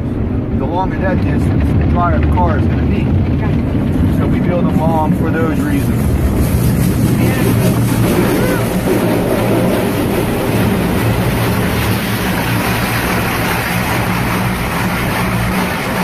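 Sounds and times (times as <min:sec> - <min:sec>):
low hum: 0:00.0 - 0:16.0
water spray drumming on car: 0:03.6 - 0:16.0.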